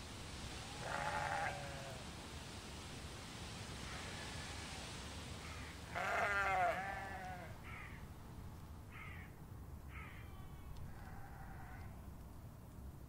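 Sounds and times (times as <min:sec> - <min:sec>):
sheep bleating: 0:00.8 - 0:02.0, 0:05.9 - 0:07.6.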